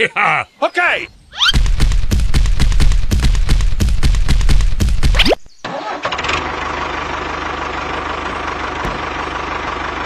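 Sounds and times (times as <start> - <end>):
tractor engine idling: 5.6 - 10.0.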